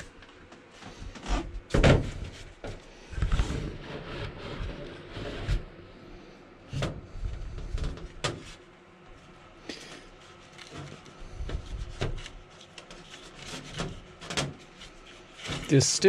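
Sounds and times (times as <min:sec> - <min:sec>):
rustling handling noise: 0:07.7 - 0:16.0.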